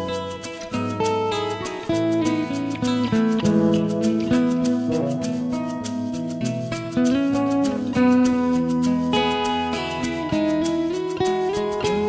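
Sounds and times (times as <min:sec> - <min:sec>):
guitar background music: 0:00.0 - 0:12.0.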